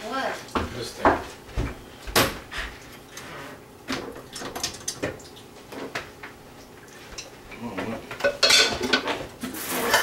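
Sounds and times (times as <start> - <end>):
kitchen utensils clattering: 8.1 - 10.0.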